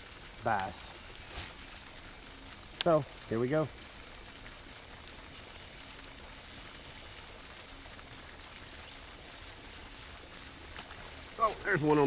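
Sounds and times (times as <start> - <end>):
water splashing from aerator: 0.0 - 12.0
faint ticks: 2.5 - 3.1.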